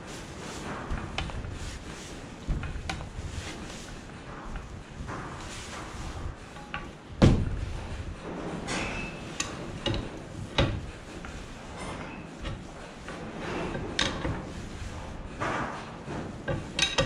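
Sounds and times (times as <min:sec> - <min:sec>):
heavy metal thump: 0:02.4 - 0:03.3, 0:04.2 - 0:11.1
spanner clicking and knocking metal: 0:16.5 - 0:17.0.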